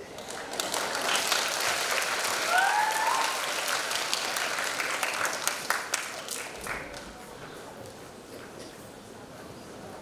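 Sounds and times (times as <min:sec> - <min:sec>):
audience applauding: 0:00.0 - 0:07.0
rising whoop: 0:02.5 - 0:03.4.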